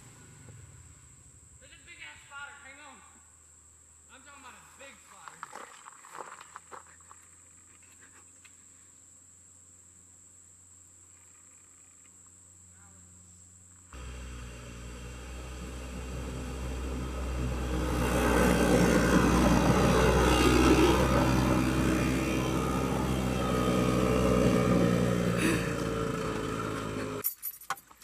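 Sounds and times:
golf cart driving past: 0.0s - 1.9s, 14.0s - 27.2s.

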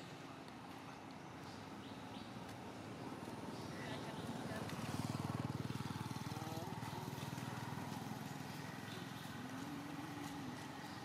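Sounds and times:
small engine running: 3.2s - 11.0s.

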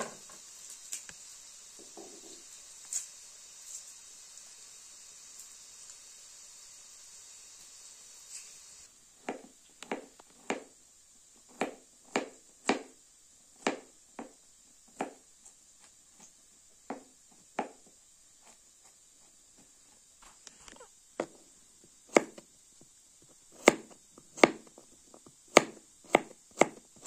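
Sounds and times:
knife chopping on a board: 9.2s - 10.7s, 11.5s - 13.0s, 13.6s - 15.2s, 16.9s - 18.6s, 22.1s - 22.4s, 23.6s - 24.8s, 25.5s - 27.0s.

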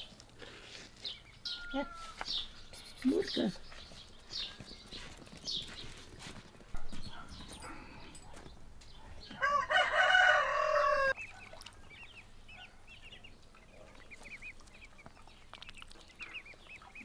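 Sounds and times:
ducklings peeping: 8.9s - 17.0s
rooster crowing: 9.4s - 11.2s.

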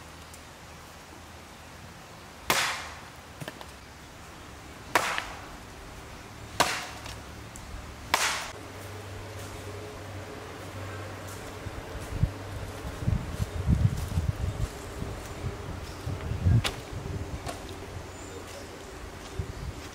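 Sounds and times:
sharp chopping blows: 2.5s - 3.0s, 4.9s - 5.5s, 6.6s - 7.2s, 8.1s - 8.6s.

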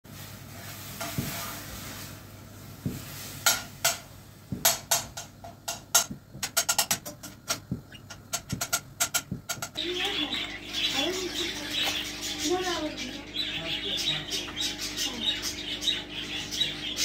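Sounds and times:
soft thumps: 2.8s - 3.1s, 4.5s - 9.8s
bird beak tapping plastic toy: 4.6s - 9.8s.

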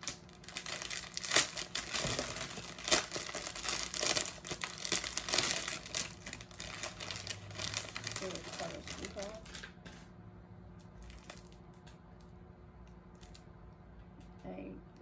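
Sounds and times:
plastic bag crinkling: 0.0s - 10.1s, 10.8s - 11.9s, 13.1s - 13.5s.

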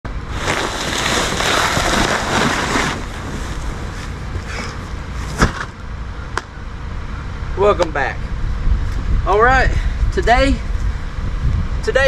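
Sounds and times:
wind buffeting microphone: 7.4s - 12.0s.

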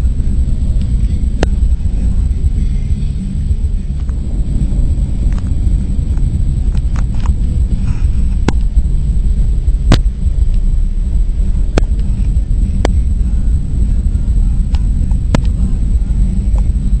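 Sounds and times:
car interior rumble: 0.0s - 17.0s.

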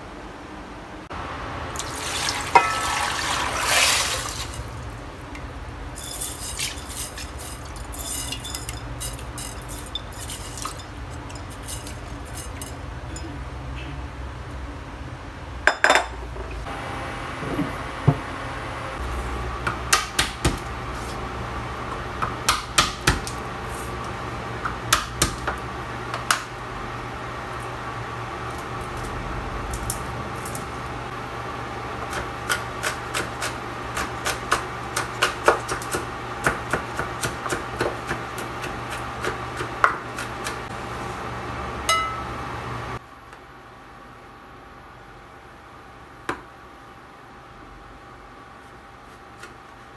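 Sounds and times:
steady hum: 0.0s - 22.7s.

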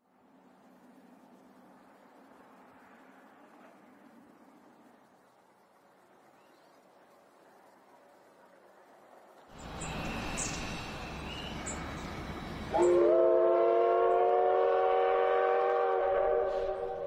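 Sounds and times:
rushing noise of moving train: 0.0s - 17.0s
train whistle: 10.0s - 17.0s.

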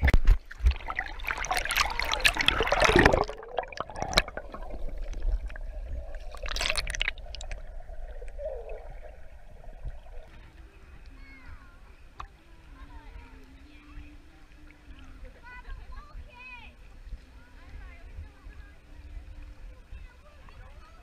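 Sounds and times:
underwater gurgling and bubbling: 0.0s - 10.9s
pool water splashing: 0.0s - 21.0s.

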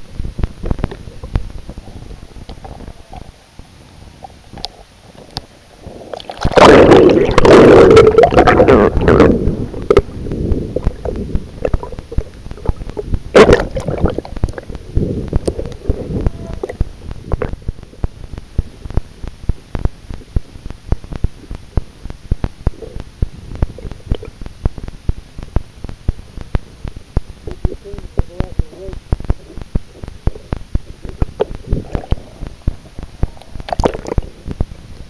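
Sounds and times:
muffled underwater rush: 0.0s - 34.9s
loud burst of water noise: 5.8s - 10.1s.

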